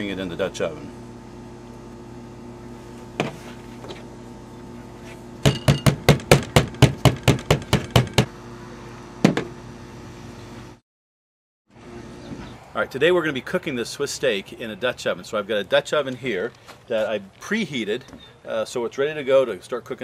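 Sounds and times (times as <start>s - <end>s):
meat mallet pounding on metal pan: 5.4s - 8.3s.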